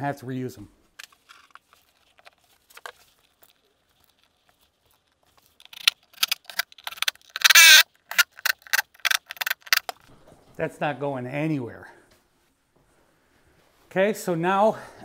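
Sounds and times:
screws and driver clicking: 5.6s - 10.0s
cordless driver spinning a screw: 5.7s - 10.0s.

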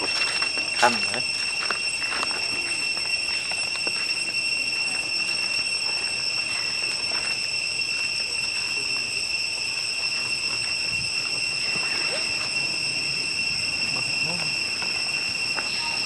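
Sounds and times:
high-pitched insect drone: 0.0s - 16.0s
faint rising squeak: 4.0s - 16.0s.

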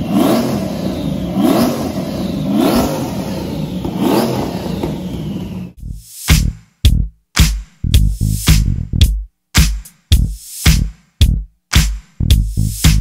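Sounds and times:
car engine idling and revving: 0.0s - 5.8s
music: 5.8s - 13.0s.

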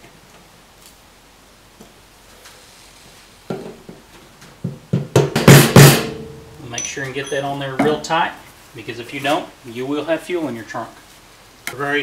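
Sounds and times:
hammer striking metal: 5.4s - 8.2s.

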